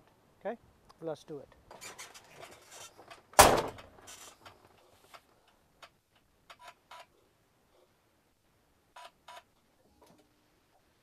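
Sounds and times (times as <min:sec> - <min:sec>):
sharp bang: 0:03.4 - 0:03.8.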